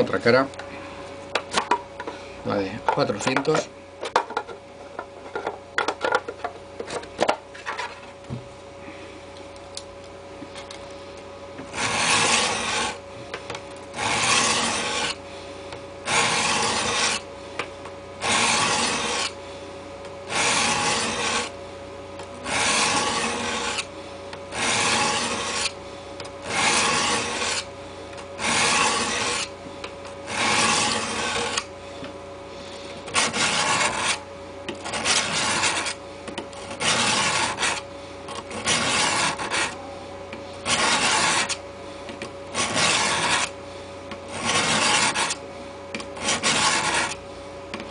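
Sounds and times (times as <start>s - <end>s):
knife scraping sharpening block: 38.5s - 39.8s, 40.6s - 41.6s, 42.6s - 43.5s.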